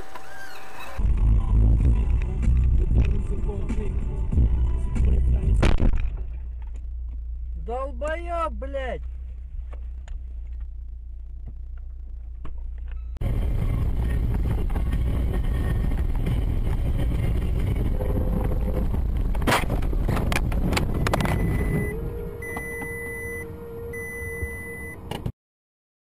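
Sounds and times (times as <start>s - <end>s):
low engine rumble: 0.0s - 25.3s
road and engine noise: 0.0s - 25.3s
electronic beep: 21.2s - 25.0s.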